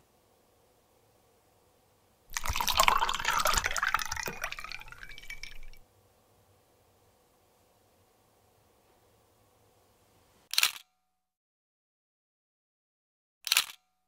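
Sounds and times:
liquid pouring into a glass: 0:02.3 - 0:05.8.

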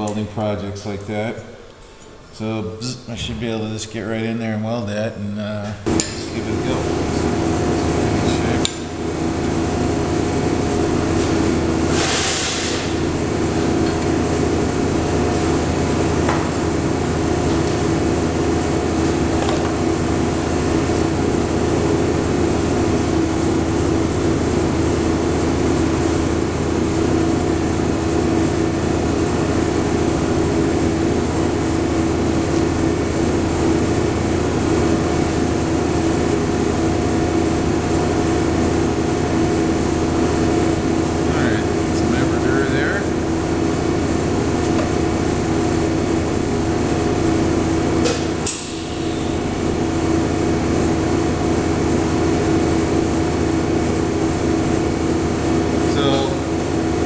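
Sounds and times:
welding machine hum: 0:05.8 - 0:57.0
short hiss: 0:11.9 - 0:12.9.

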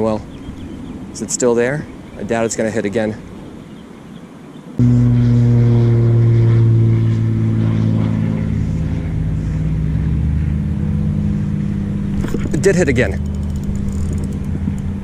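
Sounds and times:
motor droning: 0:04.8 - 0:15.0.

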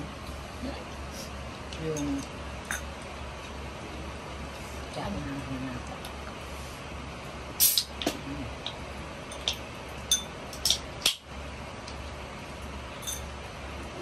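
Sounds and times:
steady low hum: 0:00.0 - 0:14.0
tableware and cans clinking: 0:02.0 - 0:02.9, 0:09.3 - 0:11.2, 0:13.0 - 0:13.3.

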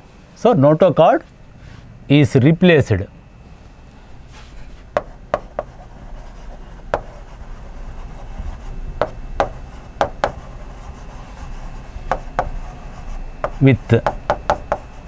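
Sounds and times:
chalk rubbing on blackboard: 0:04.3 - 0:15.0
chalk tapping on blackboard: 0:05.0 - 0:15.0.

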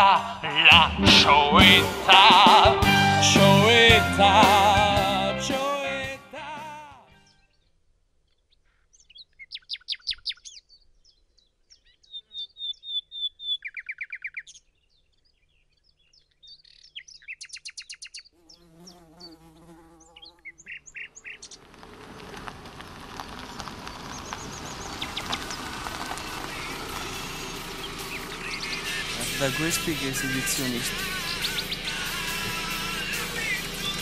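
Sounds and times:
birds chirping and trilling: 0:07.2 - 0:21.8, 0:23.0 - 0:34.0
car approaching: 0:20.6 - 0:34.0.

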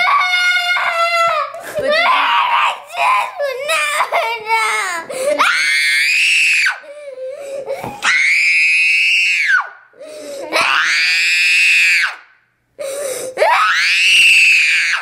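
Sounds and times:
girl sobbing cries: 0:00.0 - 0:05.8, 0:06.7 - 0:08.1, 0:12.8 - 0:13.7
girl screaming: 0:00.0 - 0:06.8, 0:08.0 - 0:09.8, 0:10.5 - 0:12.2, 0:13.4 - 0:15.0.

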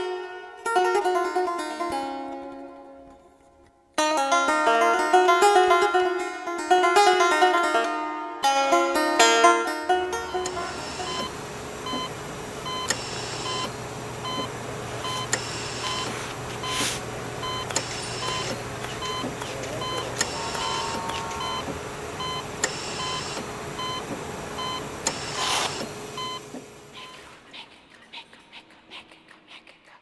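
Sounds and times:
street noise hiss: 0:10.0 - 0:27.5
electronic beep: 0:11.0 - 0:11.3, 0:17.4 - 0:24.0
sharp clicks: 0:17.6 - 0:21.8
low hum: 0:19.0 - 0:25.1.

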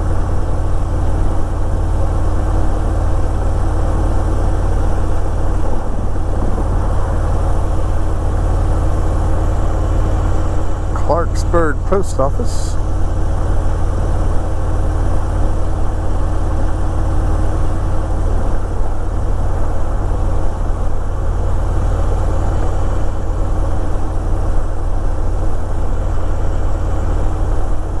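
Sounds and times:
road and wind noise: 0:00.0 - 0:28.0
motorcycle engine running: 0:01.0 - 0:12.0.

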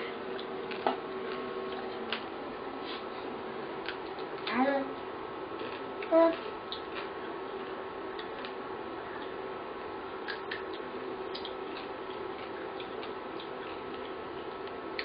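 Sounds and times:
steady room hum: 0:00.0 - 0:15.0.

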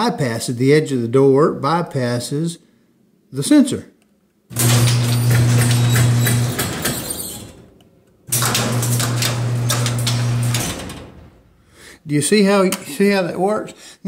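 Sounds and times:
garage door rattling on tracks: 0:04.5 - 0:11.5
garage door opener motor hum: 0:04.5 - 0:11.6.

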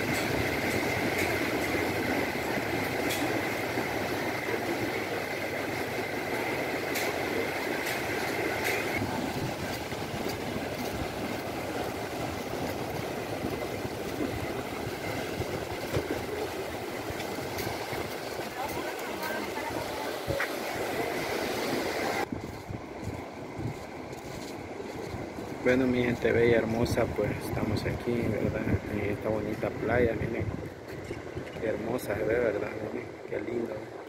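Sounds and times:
waves breaking on beach: 0:00.0 - 0:22.3.

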